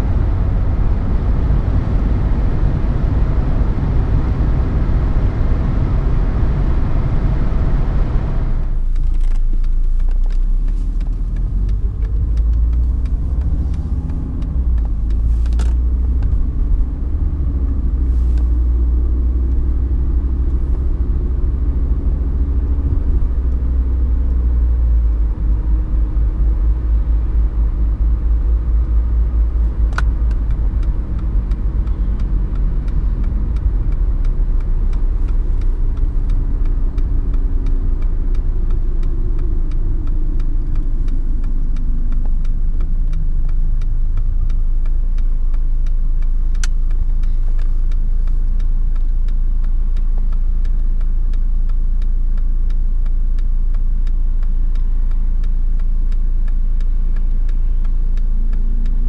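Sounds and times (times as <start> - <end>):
diesel car engine revving: 0.0 - 59.0
low rumble of driving: 0.0 - 59.0.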